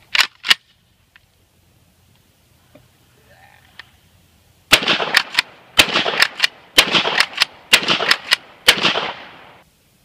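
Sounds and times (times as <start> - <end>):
shotgun shots: 4.7 - 9.6.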